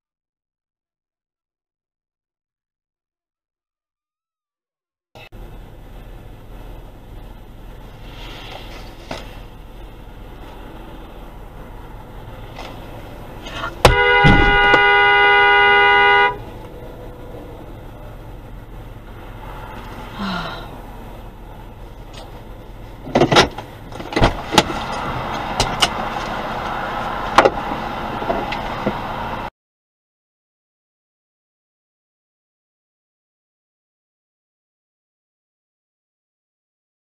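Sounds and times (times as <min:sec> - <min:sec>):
car horn blast: 0:13.5 - 0:16.7
sharp thumps and clicks: 0:13.8 - 0:14.9.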